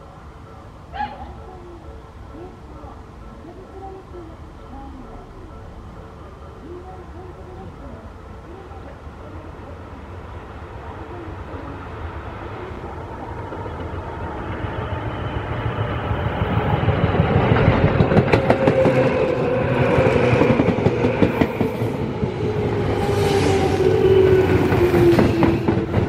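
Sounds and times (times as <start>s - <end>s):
electric train passing: 0.0s - 26.0s
train motor hum: 0.0s - 26.0s
wheels clicking over rail joints: 16.6s - 22.0s.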